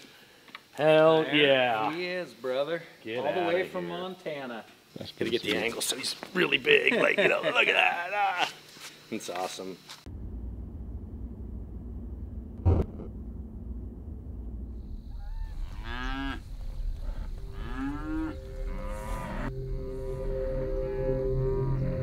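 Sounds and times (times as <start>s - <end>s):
sharp hit: 10.1s - 15.8s
low steady rumble: 10.1s - 18.6s
cattle mooing: 15.2s - 19.5s.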